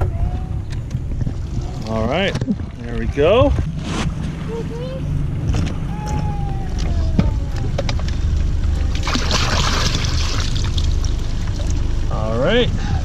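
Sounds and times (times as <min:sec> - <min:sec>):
steady low rumble: 0:00.0 - 0:13.0
water pouring and splashing: 0:08.0 - 0:12.2.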